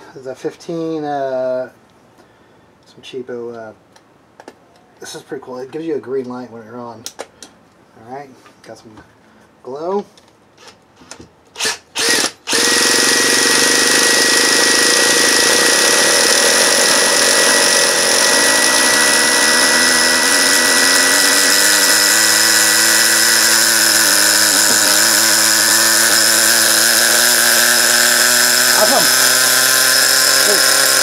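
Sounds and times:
cordless drill whining: 10.6s - 31.0s
model engine running: 12.0s - 31.0s.

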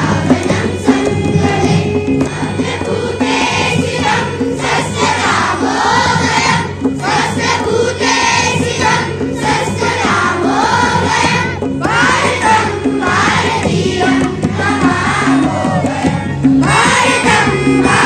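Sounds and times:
children singing in unison: 0.0s - 18.0s
tabla and dholak drums: 0.0s - 18.0s.

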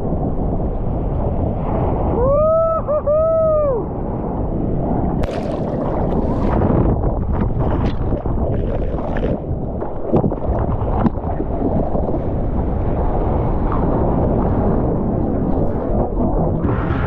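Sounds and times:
person whooping yell: 2.2s - 3.9s
paddling splashes: 5.2s - 12.2s
water sloshing against surfboard: 5.2s - 13.8s.

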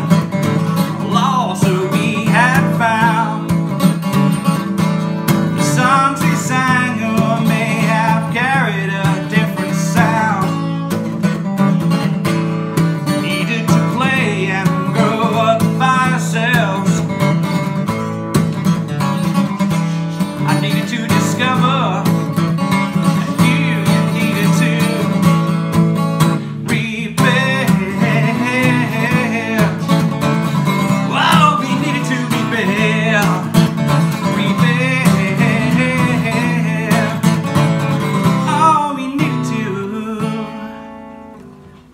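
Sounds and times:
acoustic guitar strummed: 0.0s - 41.9s.

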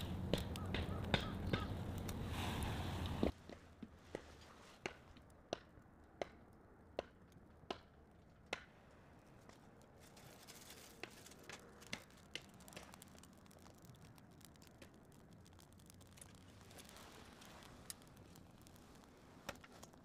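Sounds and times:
low hiss of flame: 0.0s - 3.4s, 11.3s - 20.0s
wood fire crackling and popping: 0.0s - 20.0s.

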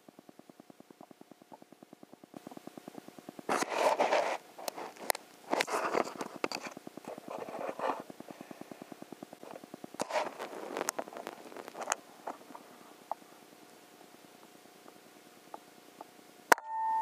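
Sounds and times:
faint rapid ticking: 0.0s - 3.5s
rustling and scraping: 3.5s - 13.0s.

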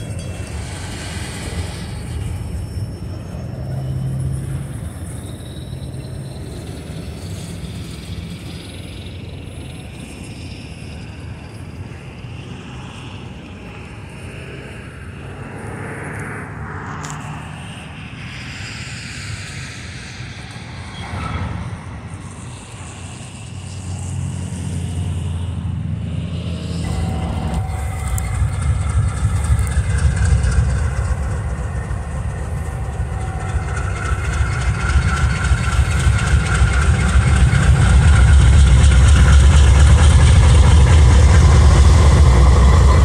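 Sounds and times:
train wheels rumbling on rails: 0.0s - 43.0s.

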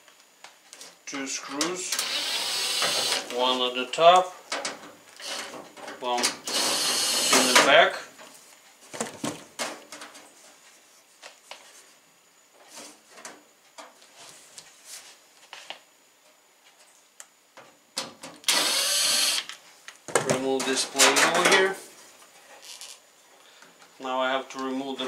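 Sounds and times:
cordless drill running: 2.0s - 3.2s, 5.2s - 5.4s, 6.4s - 7.6s, 18.5s - 19.5s.

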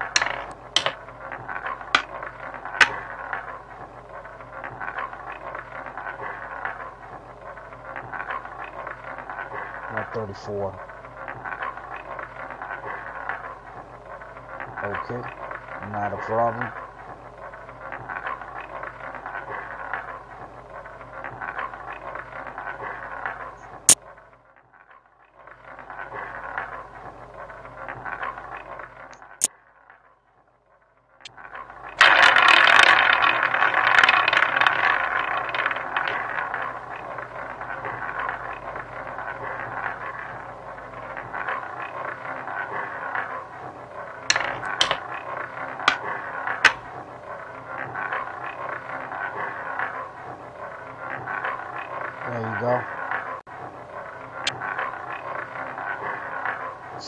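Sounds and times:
ball clattering into pocket: 0.0s - 1.0s, 1.6s - 3.1s, 32.0s - 37.1s, 44.3s - 45.1s, 45.8s - 46.9s
roulette ball rolling: 0.0s - 30.2s, 31.2s - 57.0s.

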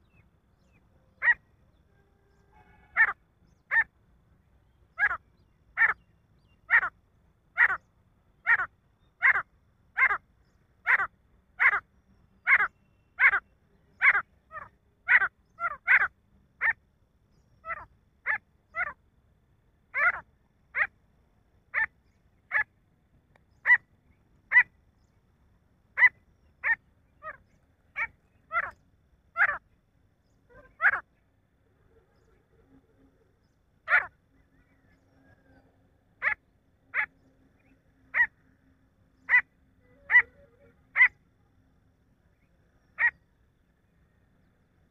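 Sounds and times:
francolin calling: 7.6s - 16.8s, 23.5s - 25.2s, 25.9s - 35.6s, 39.2s - 41.2s.

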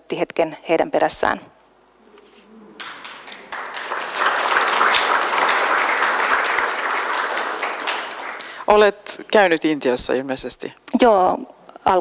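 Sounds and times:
audience applauding: 2.7s - 9.0s.

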